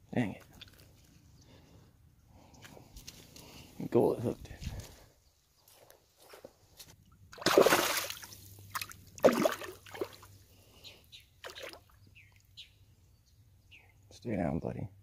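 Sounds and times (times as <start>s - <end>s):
fish splashing in shallow water: 7.4s - 10.4s, 11.4s - 11.9s.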